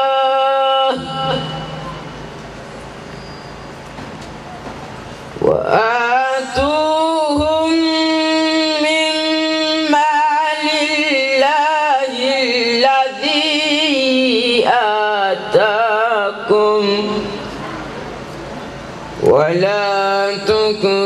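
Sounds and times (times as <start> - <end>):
man chanting into a microphone: 0.0 - 2.1, 5.4 - 17.7, 19.2 - 21.0.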